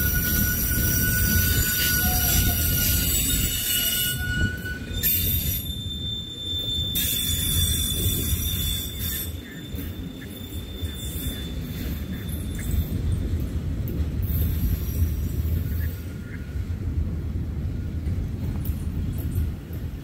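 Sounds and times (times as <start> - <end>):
train wheels squealing: 0.0 - 16.6
rumble of wheels on rail: 0.0 - 20.0.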